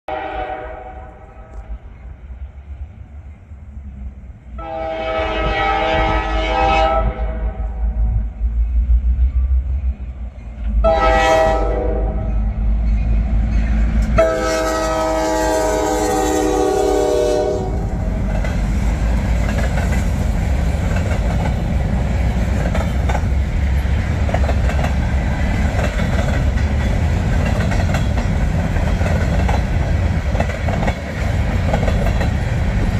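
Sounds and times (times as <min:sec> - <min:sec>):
locomotive air horn blasts: 0:00.1 - 0:01.6, 0:04.6 - 0:08.0, 0:10.8 - 0:12.3, 0:14.2 - 0:17.9
freight cars rumbling past: 0:01.6 - 0:32.9
wheels clacking over rail joints: 0:18.0 - 0:32.9.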